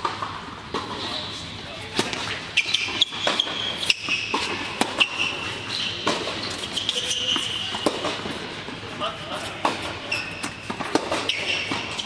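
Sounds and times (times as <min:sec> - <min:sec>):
racquet striking tennis ball: 0:01.8 - 0:08.8, 0:09.6 - 0:12.0
shoe squeaks on court: 0:02.3 - 0:08.2, 0:09.8 - 0:12.0
ball bouncing on court: 0:06.0 - 0:08.4, 0:09.6 - 0:12.0.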